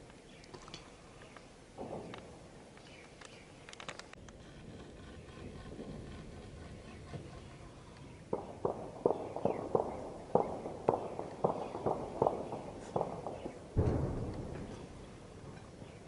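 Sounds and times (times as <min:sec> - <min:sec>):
single gunshots: 0:08.3 - 0:15.4
heavy boom with rolling tail: 0:08.3 - 0:15.6.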